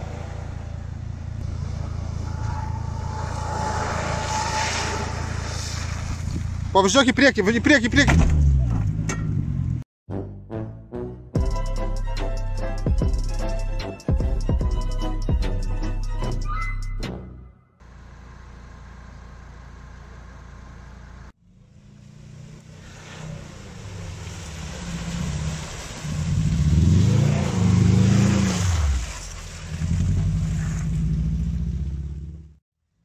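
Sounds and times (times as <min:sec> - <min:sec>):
mud and water splashing: 0:21.9 - 0:31.3
car engine revving hard: 0:24.6 - 0:29.1.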